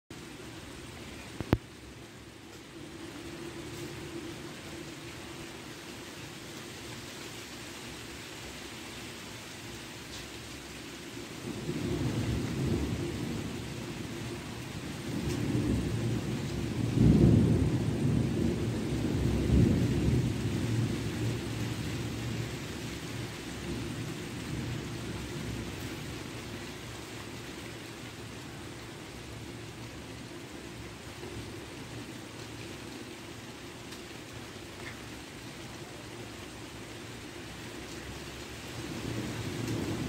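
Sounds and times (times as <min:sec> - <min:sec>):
rain hissing: 0:00.1 - 0:40.0
thunder rumbling: 0:11.4 - 0:32.6, 0:35.9 - 0:40.0.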